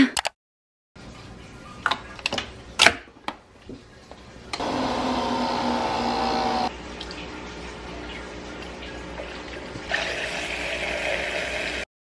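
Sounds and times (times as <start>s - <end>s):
coffee machine brewing hum: 4.5s - 11.9s.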